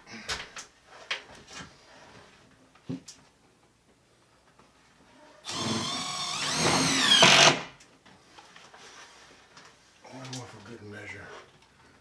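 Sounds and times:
cordless drill motor whine: 5.4 - 7.6.

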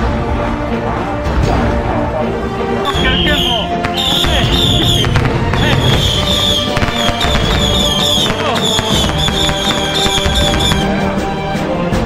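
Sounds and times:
music playing: 0.0 - 12.0
firecrackers popping: 3.4 - 11.0.

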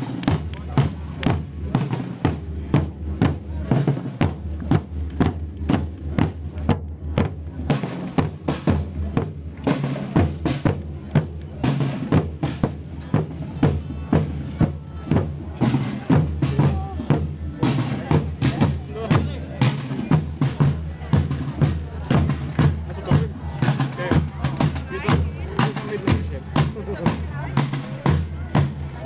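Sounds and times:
field drums beating march rhythm: 0.0 - 29.0.

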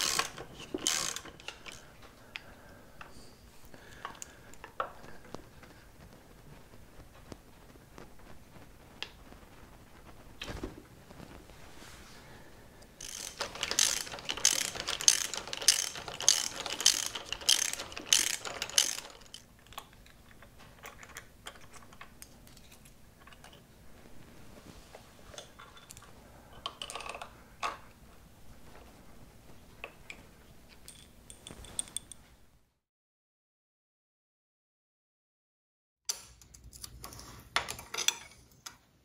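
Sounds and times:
ratchet wrench clicking: 0.0 - 1.8, 13.0 - 19.4.

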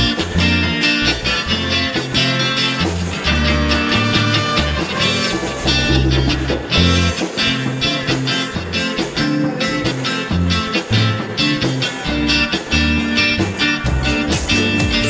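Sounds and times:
bass guitar line: 0.0 - 15.0
live band playing cha-cha: 0.0 - 15.0.

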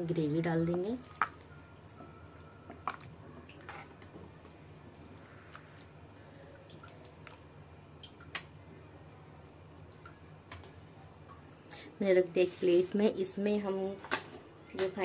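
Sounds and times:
liquid sloshing and dripping: 1.0 - 8.7.

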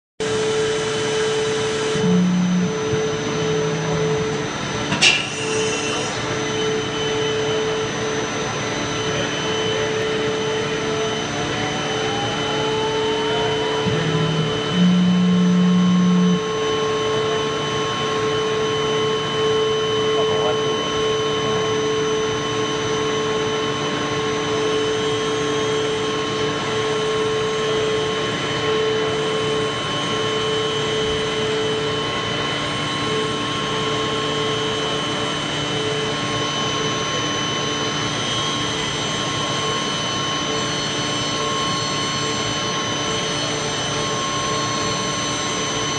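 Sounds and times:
loud low tone: 0.2 - 7.9, 8.9 - 19.0
milling machine spindle whine: 0.2 - 45.9
steady machine noise: 0.2 - 45.9.

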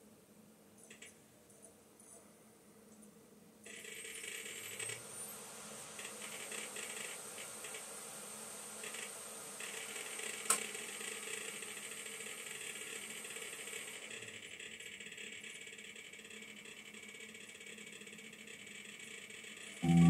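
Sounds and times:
rapid ratchet-like clicks: 8.8 - 19.7.

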